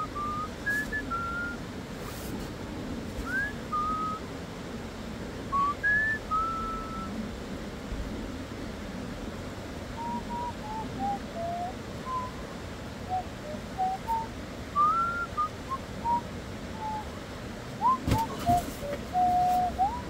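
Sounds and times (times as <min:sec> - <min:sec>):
short whistled notes: 0:00.2 - 0:01.6, 0:03.2 - 0:04.2, 0:05.6 - 0:07.1, 0:17.8 - 0:20.0.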